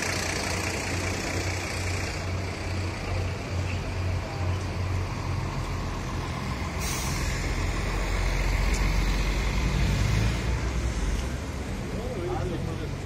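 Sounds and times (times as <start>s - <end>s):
bus diesel engine idling: 0.0s - 9.8s, 10.5s - 13.0s
compressed air hiss: 6.8s - 7.6s.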